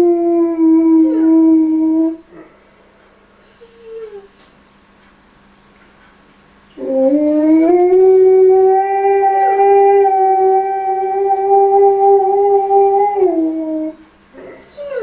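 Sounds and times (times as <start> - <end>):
dog howling: 0.0 - 2.2, 6.8 - 14.0, 14.7 - 15.0.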